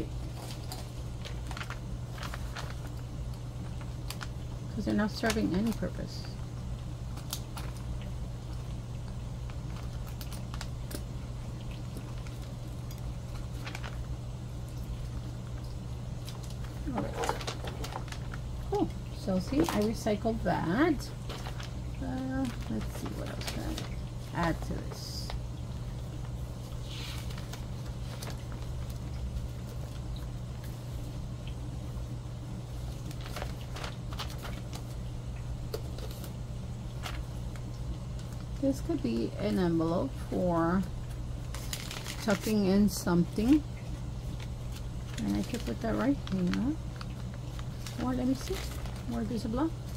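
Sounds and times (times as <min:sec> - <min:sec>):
steady low hum: 0:00.0 - 0:49.9
paper handling: 0:00.2 - 0:04.4, 0:12.0 - 0:14.9, 0:16.2 - 0:20.0, 0:21.2 - 0:25.4, 0:26.2 - 0:31.1, 0:32.7 - 0:35.0, 0:35.7 - 0:38.6, 0:41.1 - 0:42.7, 0:44.2 - 0:49.9.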